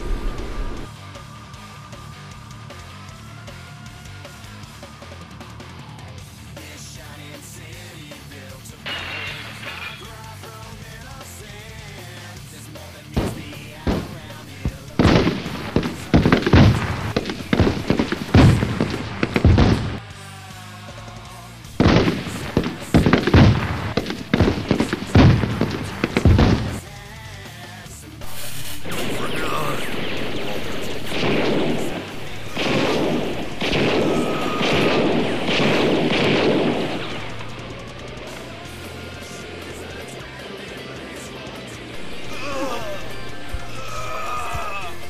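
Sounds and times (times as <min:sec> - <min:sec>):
gunshots: 0:00.0 - 0:00.9, 0:08.8 - 0:10.8, 0:13.0 - 0:20.2, 0:21.7 - 0:27.1, 0:28.2 - 0:45.0
music: 0:00.0 - 0:45.0.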